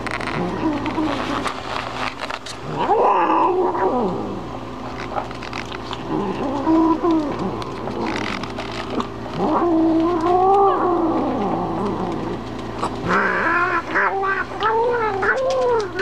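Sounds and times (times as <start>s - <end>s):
cat growling and yowling: 2.6s - 4.5s, 6.0s - 12.4s, 13.0s - 16.0s.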